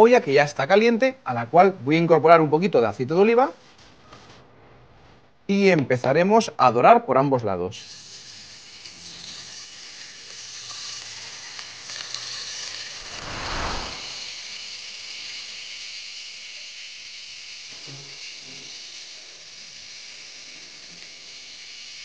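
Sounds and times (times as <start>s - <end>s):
meat sizzling in oil: 7.9s - 19.0s.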